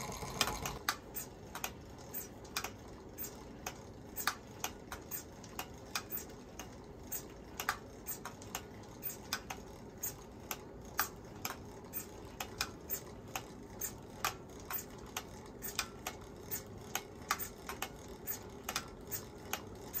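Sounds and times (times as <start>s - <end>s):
sharp mechanical clicks and ticks: 0.0s - 20.0s.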